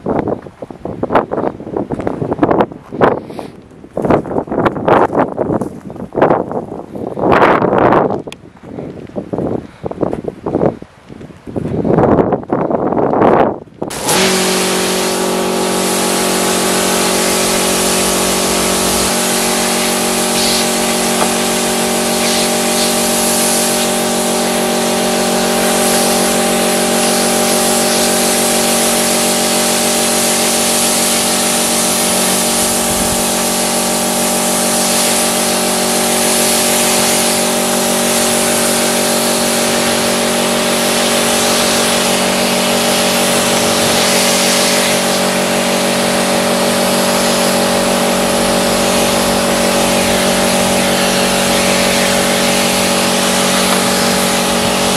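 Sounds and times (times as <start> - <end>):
pressure washer motor hum: 13.9 - 54.9
water jet hissing: 13.9 - 54.9.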